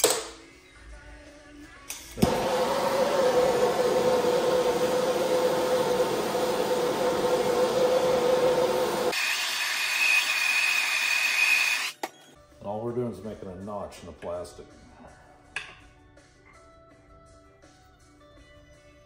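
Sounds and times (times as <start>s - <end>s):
heating tool rushing: 2.2s - 12.0s.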